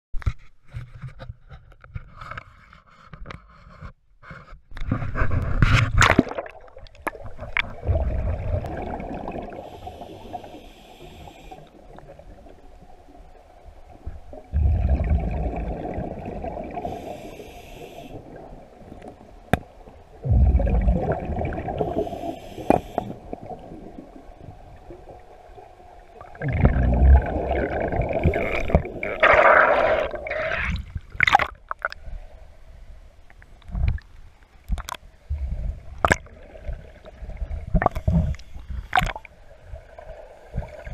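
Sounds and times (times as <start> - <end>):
exhaled bubbles gurgling underwater: 6.0 - 32.1, 34.8 - 40.9
regulator hiss: 9.6 - 11.7, 16.8 - 18.2, 21.8 - 23.2.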